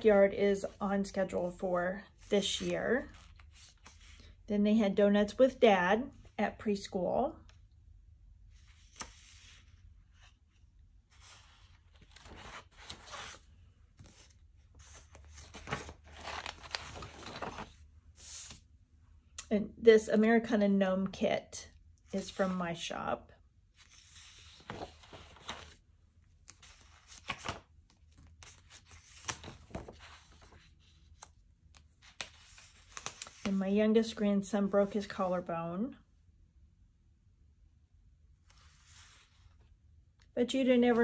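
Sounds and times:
paper page turning: 3.0 - 4.2, 8.6 - 10.4, 11.1 - 18.6, 23.8 - 25.8, 26.4 - 33.6.

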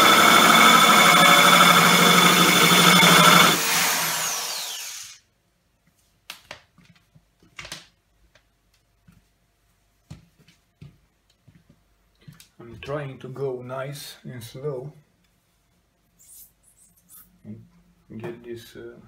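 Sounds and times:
rotary tool grinding glass: 0.0 - 5.1.

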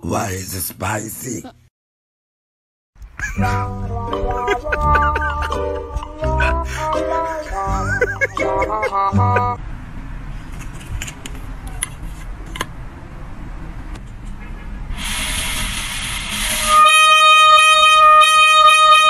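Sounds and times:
toy horn note: 16.5 - 19.0.

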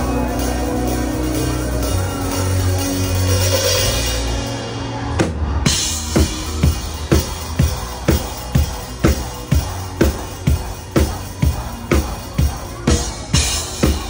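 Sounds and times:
drum kit beat: 0.0 - 14.0
live band music: 0.0 - 14.0.

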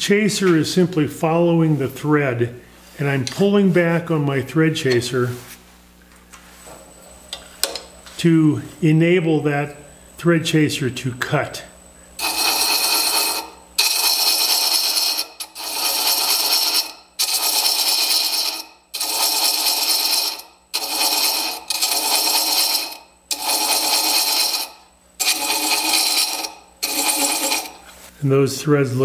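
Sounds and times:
thread chaser scraping wood on lathe: 12.2 - 28.1.

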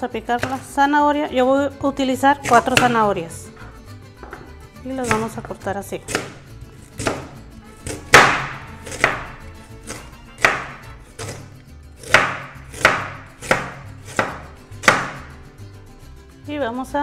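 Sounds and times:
knife slicing carrot on cutting board: 0.4 - 0.7, 2.4 - 3.0, 4.2 - 5.4, 6.0 - 15.3.

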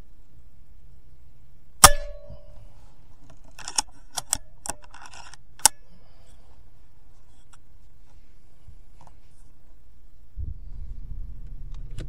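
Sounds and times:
air rifle shot: 1.8 - 2.7
rifle clicking and rattling: 1.8 - 5.8.

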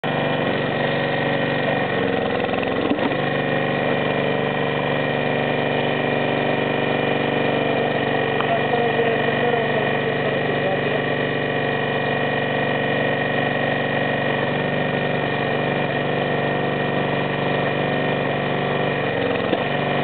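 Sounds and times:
log splitter engine running: 0.0 - 20.0
log splitting: 0.2 - 3.4.

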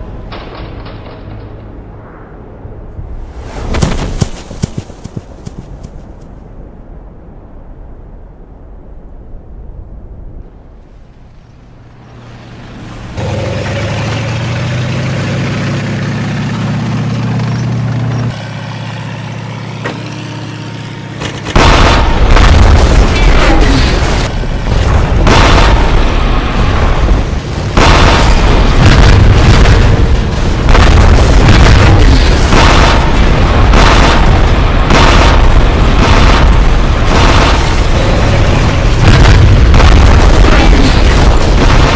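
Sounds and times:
low rumbling drone: 0.0 - 3.5, 6.4 - 41.9
explosion booms and blasts: 21.5 - 41.9.

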